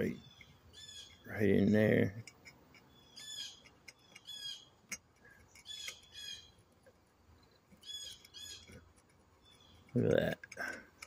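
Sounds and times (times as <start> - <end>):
bird squawking: 2.9 - 4.7, 5.6 - 6.6.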